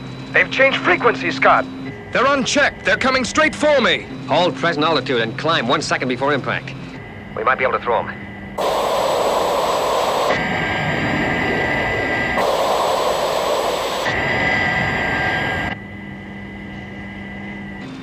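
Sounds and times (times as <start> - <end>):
cockpit hum: 8.6 - 15.8
jet roar: 8.6 - 15.8
high whine: 8.6 - 16.0.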